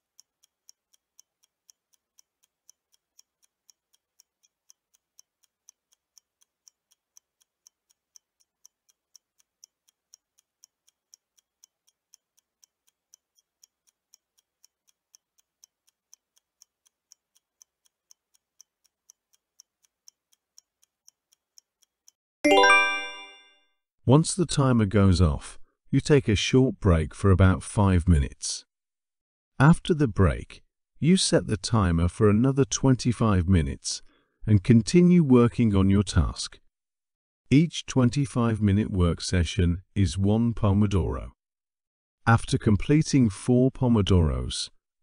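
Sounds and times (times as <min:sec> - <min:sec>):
ticking clock: 0:00.0 - 0:23.5.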